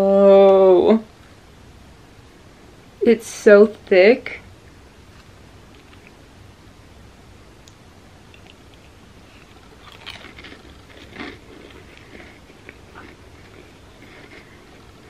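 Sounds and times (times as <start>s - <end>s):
person chewing crunchy cracker: 8.4s - 15.0s.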